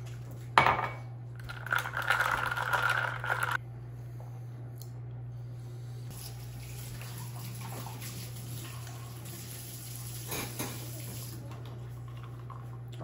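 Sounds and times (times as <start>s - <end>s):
steady low hum: 0.0s - 9.3s.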